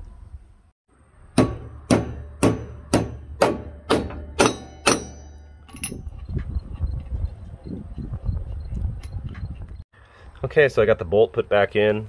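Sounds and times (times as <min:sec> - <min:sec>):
hammer striking steel: 0:01.4 - 0:06.0.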